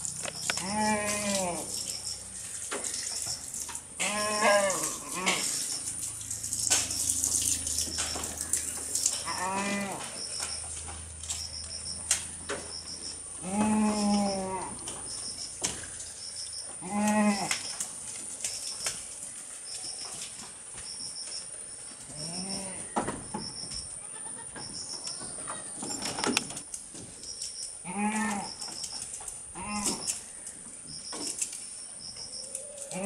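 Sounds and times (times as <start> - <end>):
goats bleating: 0.6 - 1.7, 4.0 - 5.5.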